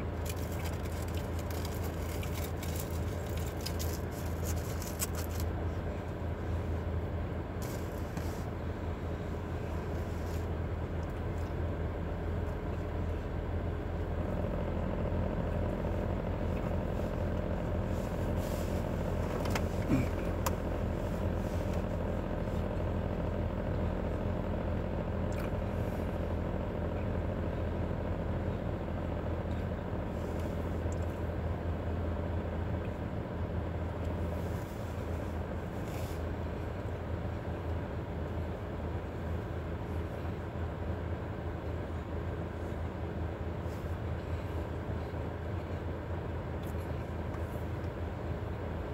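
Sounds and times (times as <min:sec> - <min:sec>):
vehicle rumble inside car: 0:00.0 - 0:48.9
plastic wrapper rustling: 0:00.2 - 0:05.4.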